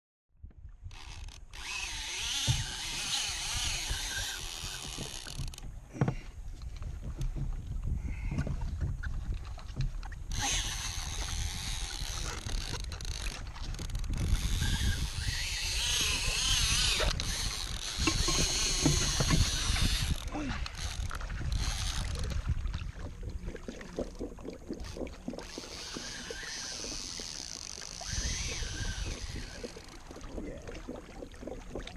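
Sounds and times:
fishing reel drag buzzing: 0.9 - 5.6, 10.3 - 22.3, 24.8 - 30.0.

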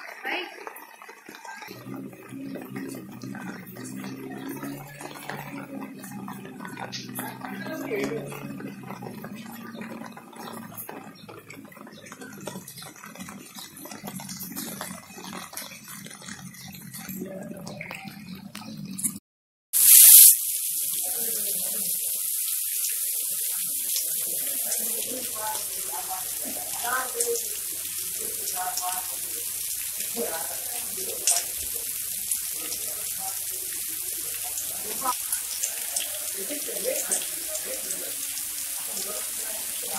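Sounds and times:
faint voices: 0.0 - 19.0, 20.9 - 39.9
heavy rain on pavement: 22.9 - 39.9.

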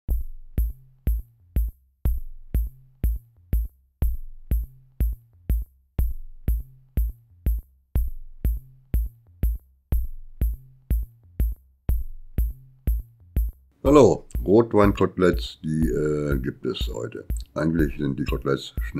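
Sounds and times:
electronic music with sharp beat: 0.1 - 18.9
low bass line: 15.6 - 18.9.

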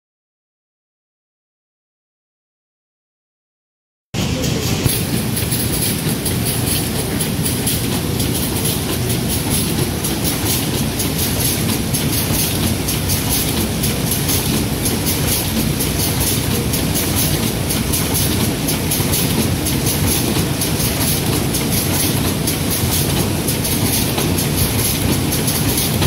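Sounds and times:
sewing machine clattering: 4.9 - 26.0.

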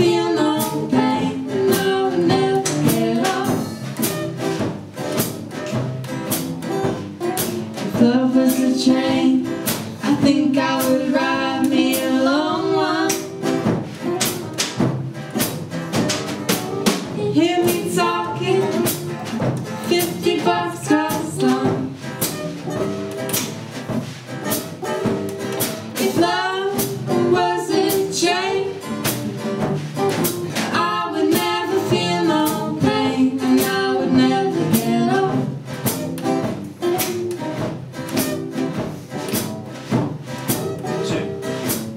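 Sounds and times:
woman singing: 0.0 - 4.1, 7.7 - 13.5, 17.1 - 19.0, 19.7 - 22.2, 24.8 - 29.1, 30.5 - 35.6
acoustic bass guitar: 0.0 - 41.9
acoustic guitar: 0.0 - 41.9
drum kit beat: 0.0 - 41.9.

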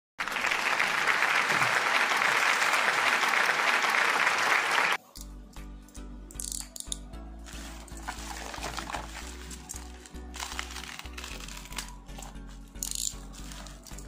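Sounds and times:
applause: 0.2 - 5.0.

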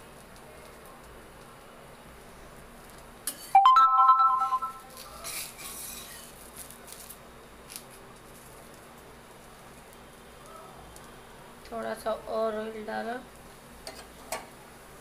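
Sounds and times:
batter sizzling: 4.8 - 15.0.

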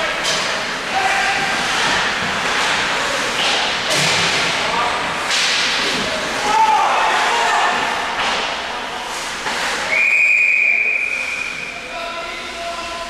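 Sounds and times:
skates scraping ice: 0.0 - 12.4
hockey sticks and puck knocking: 0.1 - 4.6, 5.2 - 6.4, 7.7 - 9.9
players shouting: 6.0 - 8.2
referee's whistle blast: 9.9 - 11.8.

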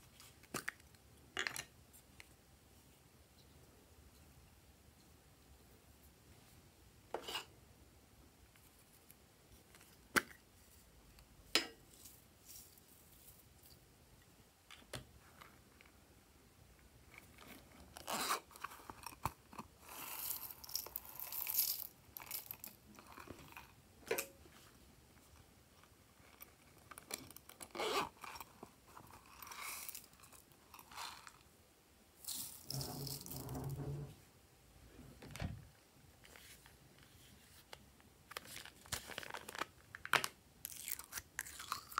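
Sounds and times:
crinkling and scraping: 17.0 - 31.5, 32.2 - 34.3, 34.9 - 41.9.

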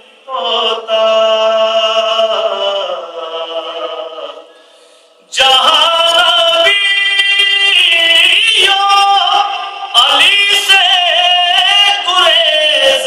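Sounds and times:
man singing into a microphone: 0.0 - 4.5, 5.3 - 13.0.

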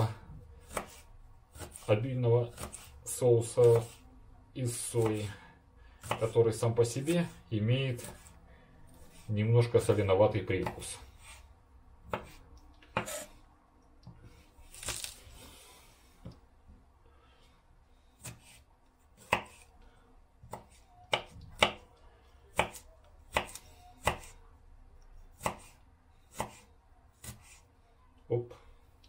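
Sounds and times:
knife chopping on wooden board: 0.6 - 1.9, 2.5 - 2.9, 3.6 - 4.0, 6.0 - 6.3, 8.0 - 8.3, 12.1 - 13.3, 18.2 - 18.6, 19.2 - 19.6, 20.4 - 21.8, 22.5 - 24.3, 25.4 - 27.6.

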